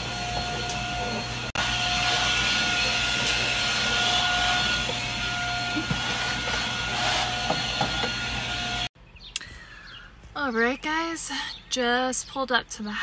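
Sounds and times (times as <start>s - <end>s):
vacuum cleaner running: 0.0s - 8.9s.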